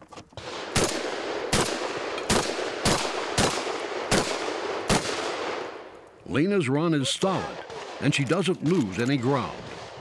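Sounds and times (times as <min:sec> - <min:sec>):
gunshot echo: 0:00.4 - 0:05.8
shotgun shots: 0:00.4 - 0:05.8.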